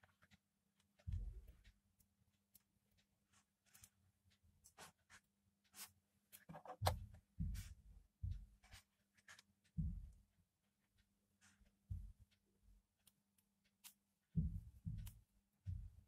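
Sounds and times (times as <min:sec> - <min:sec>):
fingers handling thin wires: 0:00.0 - 0:07.3, 0:08.6 - 0:16.0
soft low thumps: 0:01.0 - 0:01.7, 0:06.7 - 0:08.8, 0:09.7 - 0:10.4, 0:11.8 - 0:12.4, 0:14.3 - 0:16.0.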